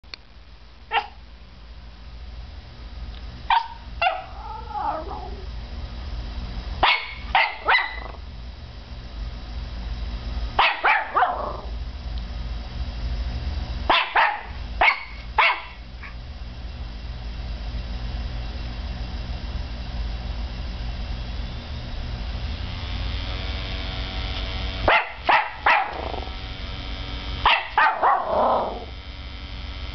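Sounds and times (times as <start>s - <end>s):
low hum of cd drive: 0.1s - 29.9s
puppy barking: 0.9s - 1.2s, 3.5s - 5.4s, 6.8s - 8.2s, 10.6s - 11.7s, 13.9s - 16.2s, 24.9s - 26.3s, 27.4s - 28.9s
puppy yelp: 0.9s - 1.2s, 3.5s - 5.5s, 6.8s - 8.1s, 10.6s - 11.6s, 13.9s - 16.2s.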